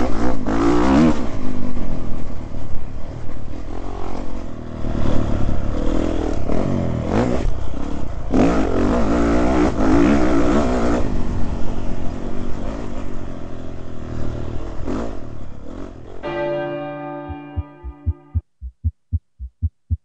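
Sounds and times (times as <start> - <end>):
held musical tone: 16.2 - 19.8.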